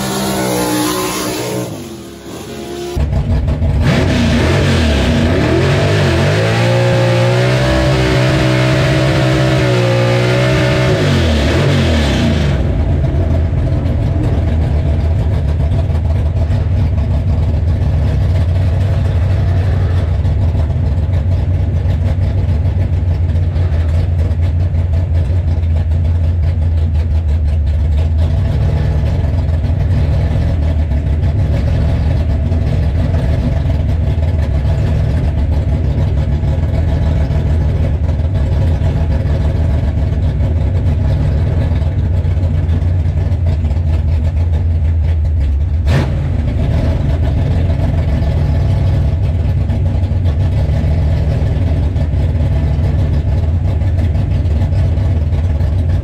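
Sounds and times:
car engine revving: 0.0 - 22.0
engine idling: 2.1 - 4.0, 12.2 - 56.0.

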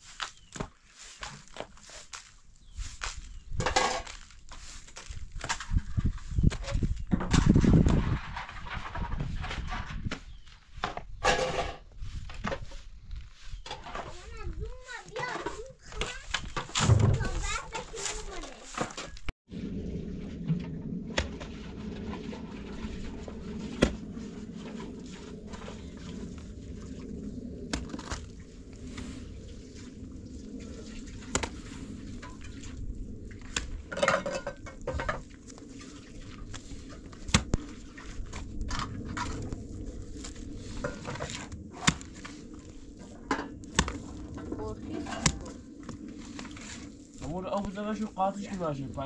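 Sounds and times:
low background rumble: 19.5 - 49.0.

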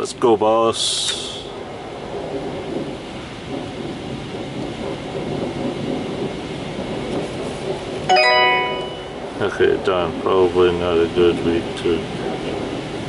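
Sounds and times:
steady multi-pitch tone: 8.1 - 9.4.

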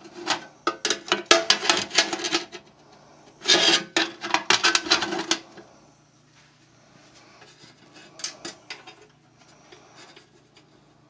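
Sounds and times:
metal box scraping and rattling: 0.0 - 2.6, 3.4 - 5.6.

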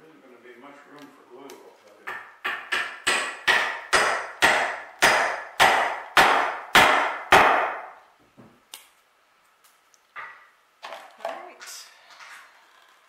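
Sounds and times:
mallet striking wood chisel: 2.0 - 8.0.

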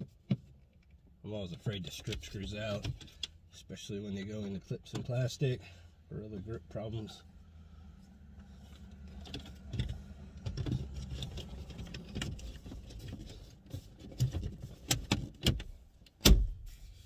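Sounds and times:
plastic trim rubbing and knocking: 9.1 - 15.6.

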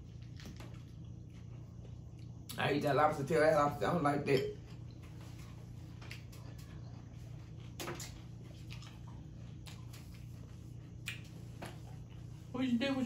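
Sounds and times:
low steady hum: 0.0 - 13.0
person chewing: 4.8 - 12.4.

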